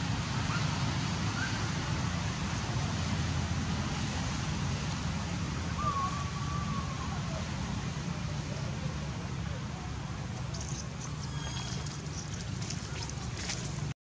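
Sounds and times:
faint high whistles: 10.6 - 11.9.

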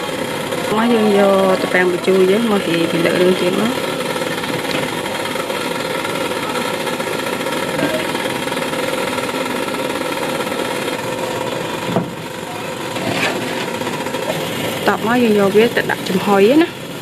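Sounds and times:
steady mechanical drone: 0.0 - 17.0.

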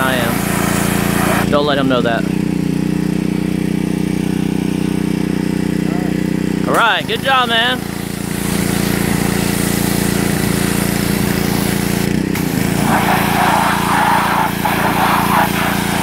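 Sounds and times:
water jet hissing on car: 0.0 - 1.5, 7.8 - 16.0
pressure washer running: 0.0 - 16.0.

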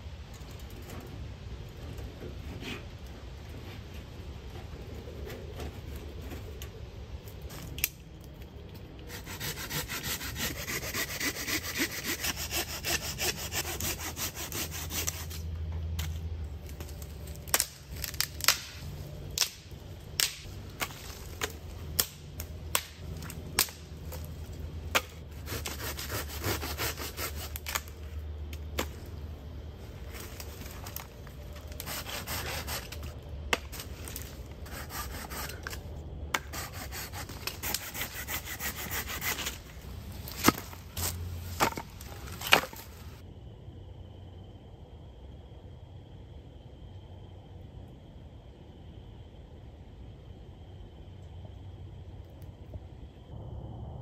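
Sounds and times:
hand saw rasping: 9.1 - 15.4, 25.4 - 27.6, 31.8 - 33.0, 36.4 - 39.6.

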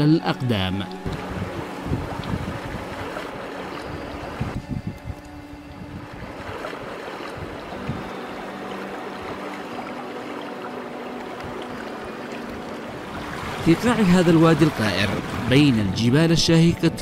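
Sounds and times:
wind on microphone: 1.0 - 8.3, 14.6 - 15.7
stream running over stones: 6.2 - 15.9.

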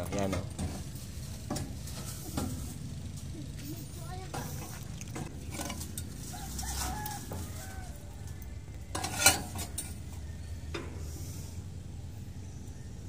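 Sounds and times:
metal knocks and clatter: 0.0 - 3.3, 4.1 - 7.8, 8.9 - 11.0
low steady hum: 0.0 - 13.0.

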